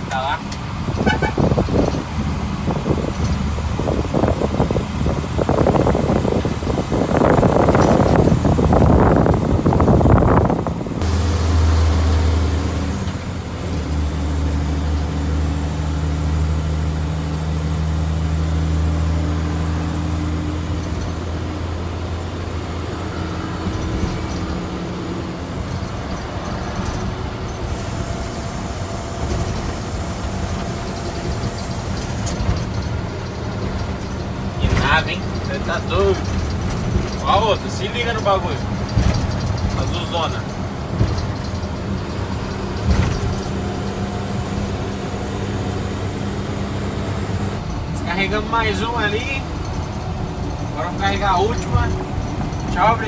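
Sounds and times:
wind noise: 0:00.0 - 0:16.0
diesel truck engine droning: 0:00.0 - 0:53.0
road noise: 0:00.0 - 0:53.0.

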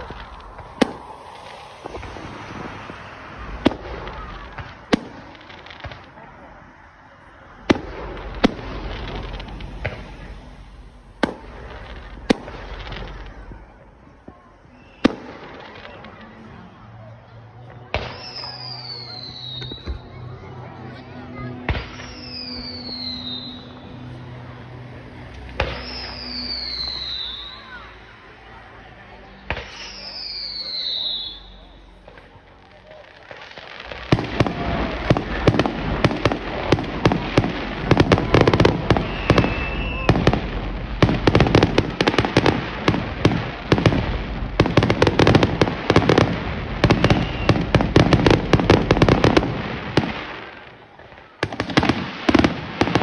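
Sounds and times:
firework whistle falling in pitch: 0:00.0 - 0:04.6, 0:18.0 - 0:20.2, 0:21.7 - 0:24.1, 0:25.3 - 0:28.0, 0:29.6 - 0:31.8, 0:37.8 - 0:42.5, 0:46.8 - 0:48.0
fireworks bangs: 0:00.0 - 0:27.9, 0:29.2 - 0:53.0
faint fireworks cracks: 0:00.0 - 0:53.0.

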